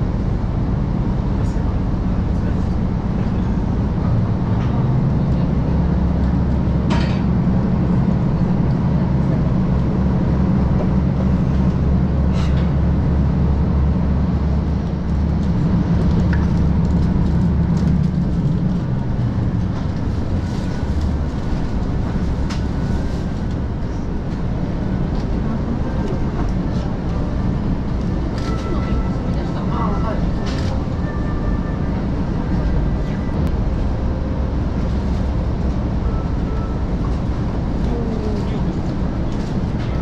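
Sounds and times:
diesel engine drone: 0.0 - 40.0
rail noise: 0.0 - 40.0.

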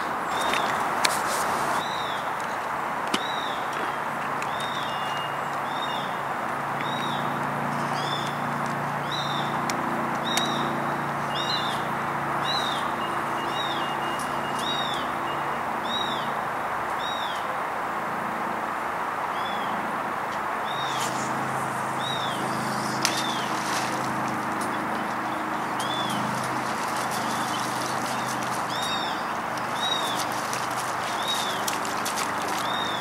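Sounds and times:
bird chirping: 10.2 - 16.3, 20.6 - 33.0
steady hiss: 20.7 - 24.4.

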